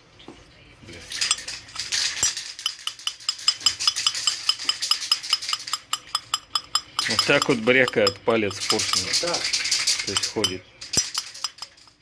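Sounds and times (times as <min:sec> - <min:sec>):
piston pin rattling metallic clinks: 0:02.2 - 0:09.2, 0:10.0 - 0:12.0.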